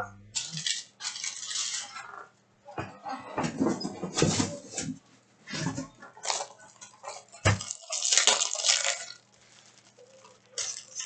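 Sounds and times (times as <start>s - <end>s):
card packs crinkling and rustling: 6.0s - 11.0s.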